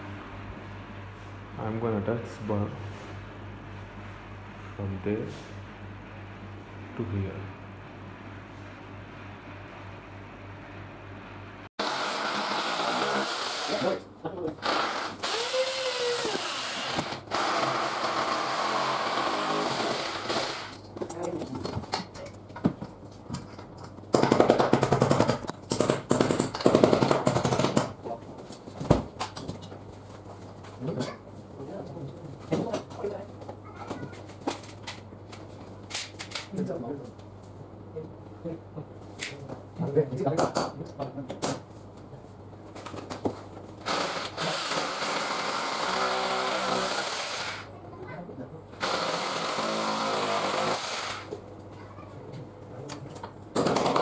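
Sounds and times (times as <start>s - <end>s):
low background hum: 0.0s - 54.0s
electric drill boring into wall: 11.8s - 14.0s, 14.6s - 20.8s, 43.8s - 47.7s, 48.8s - 51.4s.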